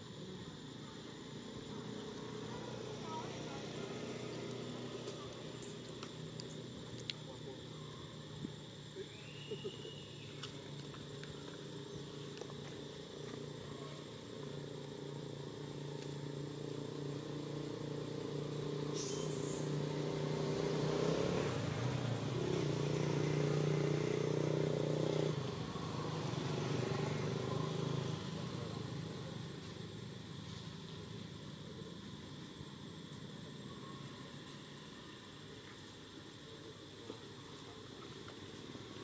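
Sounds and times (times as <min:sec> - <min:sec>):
vehicle engine running: 0:10.3 - 0:33.6
high hiss: 0:15.8 - 0:21.0.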